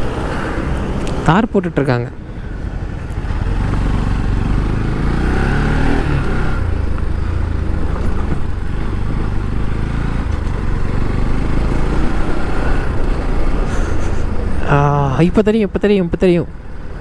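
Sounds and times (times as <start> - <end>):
motorcycle engine running: 2.4 - 13.5.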